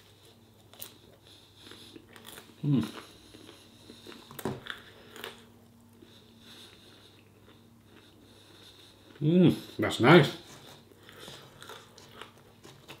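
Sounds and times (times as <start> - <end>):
chewing bread: 0.0 - 13.0.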